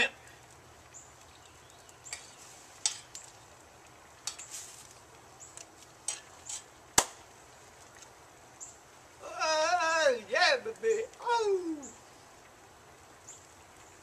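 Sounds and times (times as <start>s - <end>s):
metal spoon scraping skillet: 6.0s - 6.7s.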